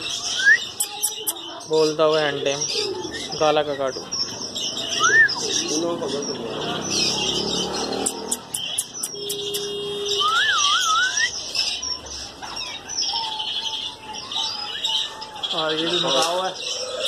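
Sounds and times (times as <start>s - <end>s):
caged birds chirping and chattering: 0.0s - 17.0s
wavering whistle: 8.3s - 11.3s.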